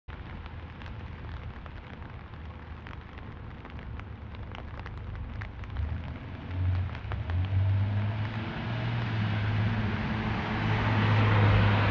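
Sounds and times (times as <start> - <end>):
rain falling on street: 0.1 - 11.9.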